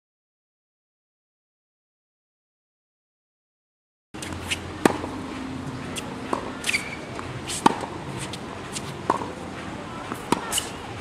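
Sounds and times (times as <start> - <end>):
racket hitting tennis ball: 4.2 - 11.0
tennis ball bouncing: 4.2 - 11.0.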